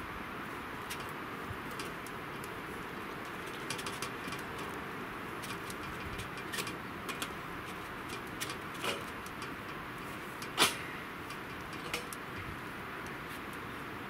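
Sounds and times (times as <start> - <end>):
outdoor background hiss: 0.0 - 14.0.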